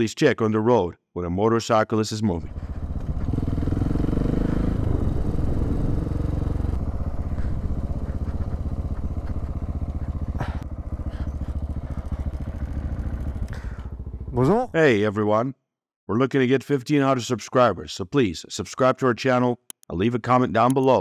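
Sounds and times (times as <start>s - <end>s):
motorcycle engine slowing down: 2.4s - 14.8s.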